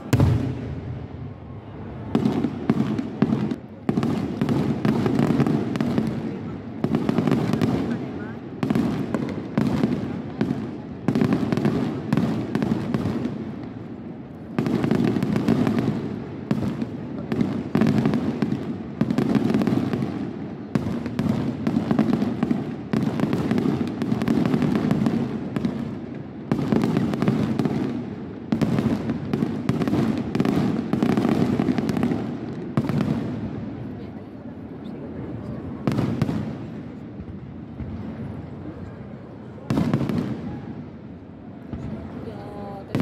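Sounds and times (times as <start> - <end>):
firework crackle: 0.0 - 34.0.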